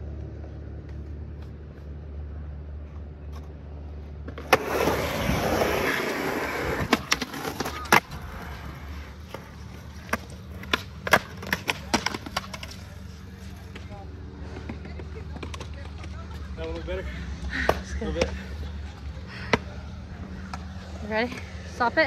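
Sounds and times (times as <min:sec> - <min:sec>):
skateboard wheels rolling: 0:00.0 - 0:22.0
board sliding on concrete ledge: 0:04.2 - 0:16.4
skateboard clacking: 0:04.3 - 0:16.9.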